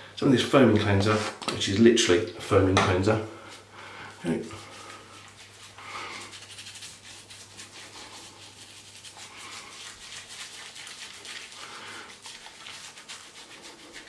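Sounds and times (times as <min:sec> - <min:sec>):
fingers scrubbing a beard: 0:04.2 - 0:14.0.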